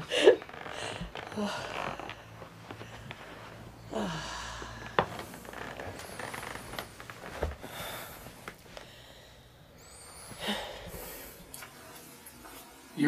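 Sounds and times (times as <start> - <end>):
clothes rustling: 0.0 - 9.0
person breathing: 0.1 - 6.8, 7.6 - 11.8.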